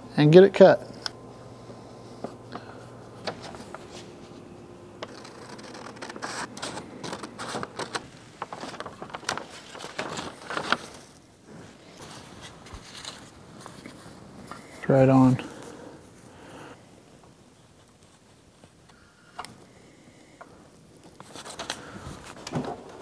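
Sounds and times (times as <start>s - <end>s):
scissors cutting paper: 5.0s - 8.0s
paper crinkling and rustling: 5.0s - 15.8s, 21.0s - 23.0s.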